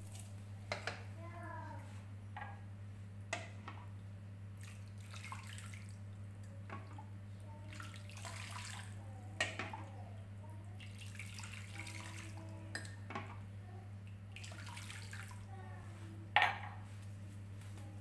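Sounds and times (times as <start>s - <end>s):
water sloshing in a frying pan: 3.3s - 15.9s.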